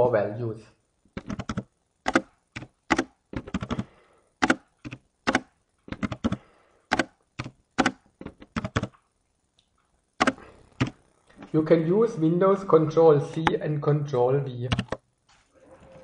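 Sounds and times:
computer keyboard typing: 1.2 - 9.0, 10.2 - 11.0, 14.7 - 15.0.

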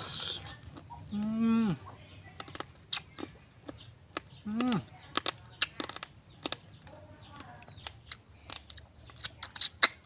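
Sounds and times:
mouth smacking: 0.0 - 6.6, 8.1 - 10.0
crab shell crunching: 2.3 - 10.0.

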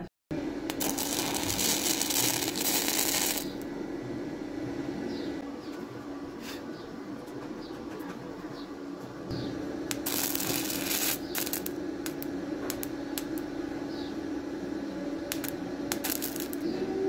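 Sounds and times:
steady hum: 0.0 - 17.0
carbon arc crackling and sizzling: 0.6 - 3.8, 9.5 - 16.7.

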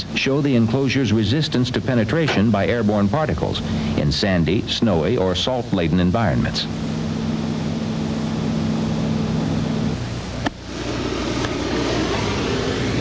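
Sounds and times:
machine hum: 0.0 - 13.0
flare hissing: 6.7 - 13.0.

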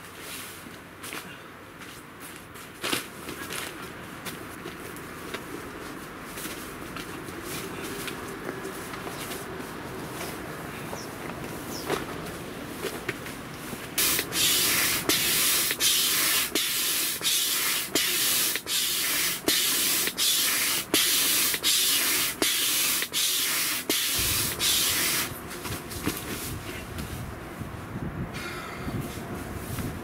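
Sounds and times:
air mattress rustling: 1.8 - 28.3, 28.9 - 30.0
hand air pump strokes: 14.0 - 25.4.

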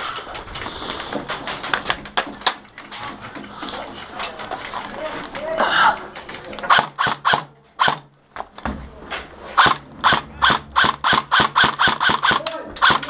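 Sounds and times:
airsoft rifle shots: 6.7 - 8.1, 9.6 - 13.0.

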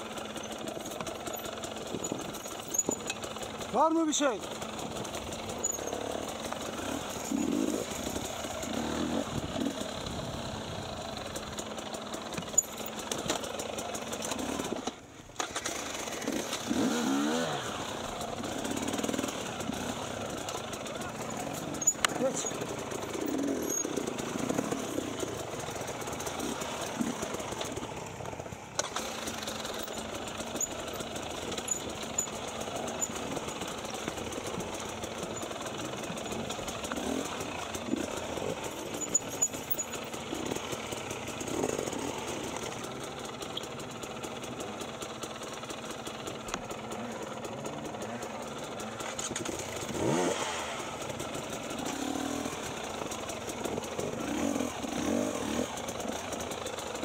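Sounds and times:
dirt bike engines low revs: 0.0 - 57.0.

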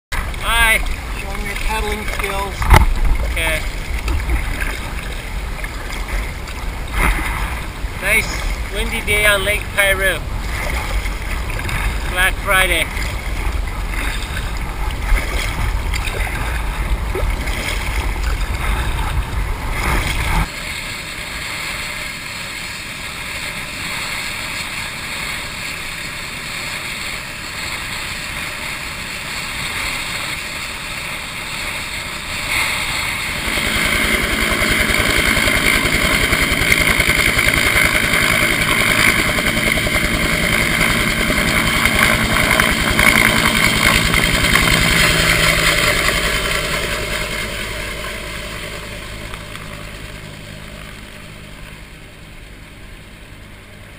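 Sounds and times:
wind buffeting microphone: 0.2 - 20.5
helicopter engine and rotor: 31.8 - 53.9.

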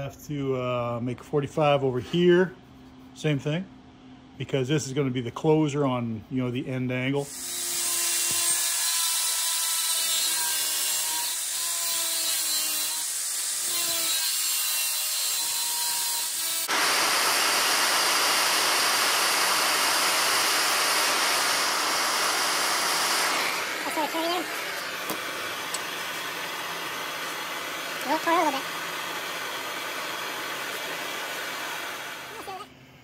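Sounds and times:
power tool motor whine: 7.3 - 32.6
loud rushing cutting noise: 16.6 - 32.4.

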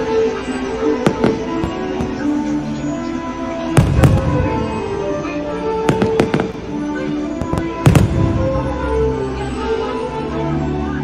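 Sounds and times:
music soundtrack: 0.0 - 11.0
fireworks bursting with sharp bangs: 1.0 - 2.6, 3.7 - 9.2.

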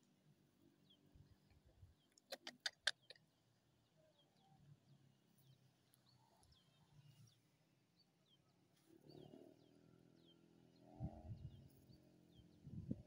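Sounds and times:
birds chirping: 0.7 - 13.0
sharp clicks: 2.1 - 3.2.

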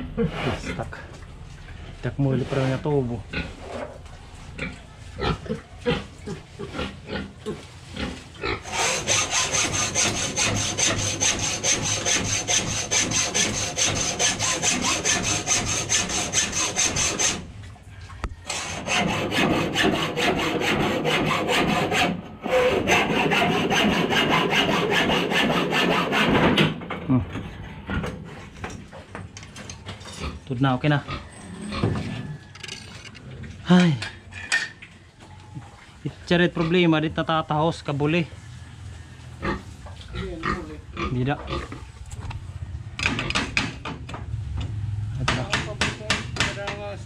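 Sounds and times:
hacksaw cutting metal: 8.6 - 17.5, 18.5 - 26.8.

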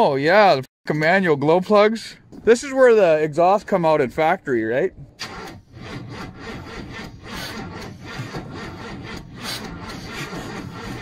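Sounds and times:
diesel engine cranking without firing: 5.1 - 11.0.

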